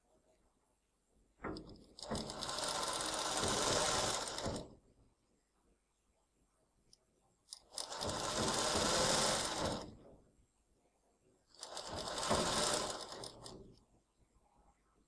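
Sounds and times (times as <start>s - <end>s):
sewing machine stitching: 1.5s - 4.8s, 7.5s - 10.0s, 11.6s - 13.8s.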